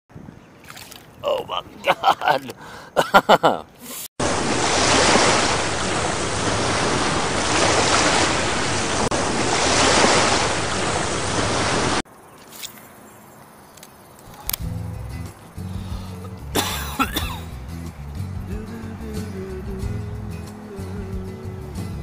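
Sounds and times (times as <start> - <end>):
ocean waves rushing: 3.8 - 12.0.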